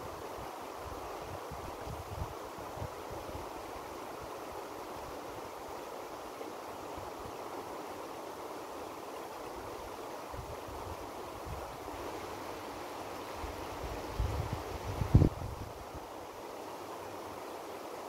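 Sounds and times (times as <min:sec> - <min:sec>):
river rushing: 0:00.0 - 0:18.0
wind buffeting microphone: 0:14.1 - 0:15.8.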